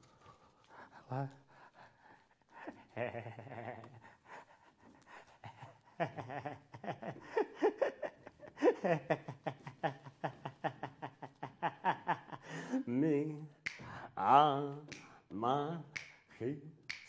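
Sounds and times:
man laughing excitedly: 2.7s - 4.2s, 5.4s - 12.9s.

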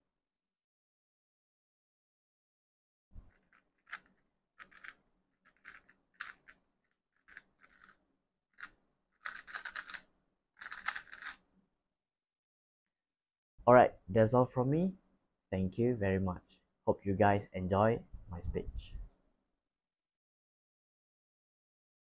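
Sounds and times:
puzzle cube clicking as turned: 3.3s - 8.0s, 8.6s - 10.0s, 10.6s - 11.4s.

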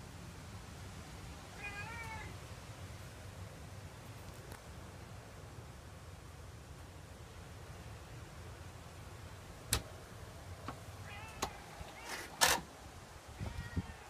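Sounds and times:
cat mewing: 1.5s - 2.4s, 11.0s - 12.6s, 13.4s - 14.0s
rustling: 10.7s - 12.8s.

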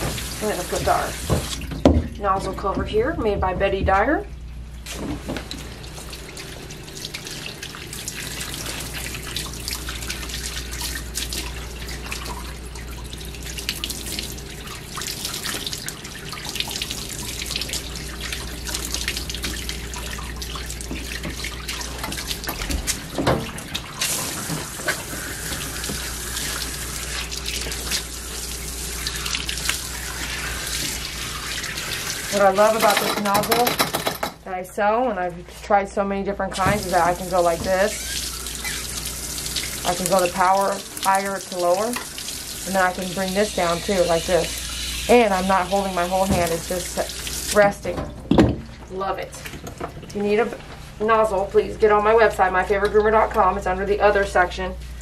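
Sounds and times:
water splashing and dripping: 0.0s - 33.7s, 36.5s - 51.6s
water spraying from hose nozzle: 36.6s - 47.6s.

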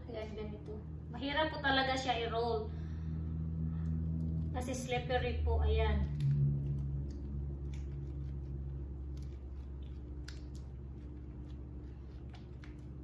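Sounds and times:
low room hum: 0.0s - 13.0s
soft rustles of tortilla wrap: 6.2s - 13.0s.

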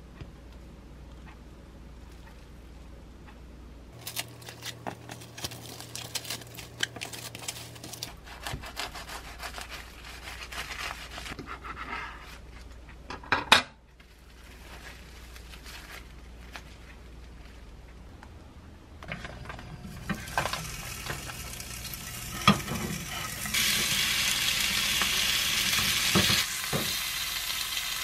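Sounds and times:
cling film crinkling: 4.0s - 11.4s, 14.0s - 17.7s
bread knife sawing sandwich: 8.2s - 12.0s.

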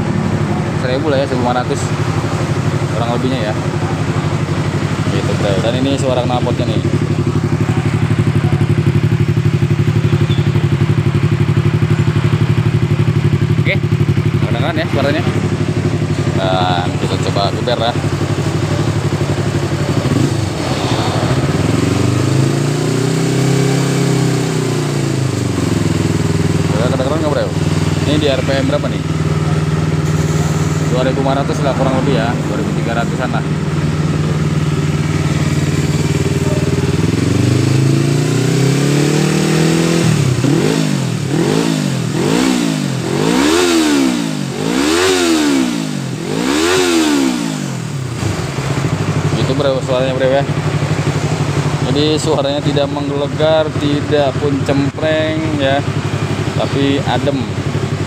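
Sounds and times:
motorcycle engine revving: 0.0s - 58.0s
mechanical engine noise: 13.7s - 49.2s.

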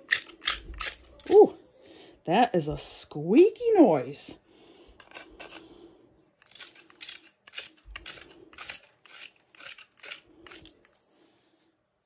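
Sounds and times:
metal threads squeaking and scraping: 5.0s - 5.7s, 6.4s - 11.0s.

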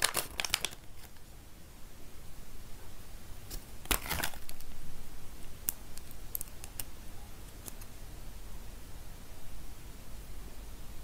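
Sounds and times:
paper crinkling: 0.0s - 1.2s, 3.5s - 4.8s.

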